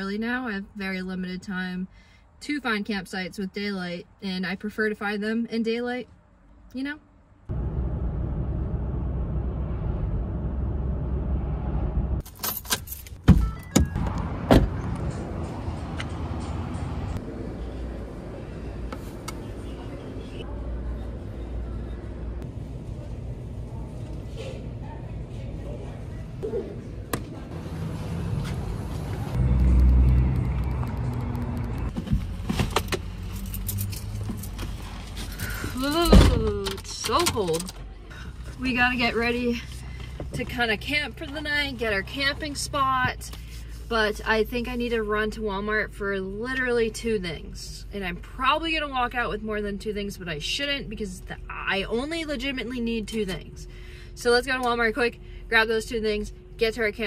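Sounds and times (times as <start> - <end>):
road and engine rumble: 0.0 - 57.0
low rumble: 7.4 - 12.2
keys jangling: 12.2 - 13.2, 33.3 - 34.6.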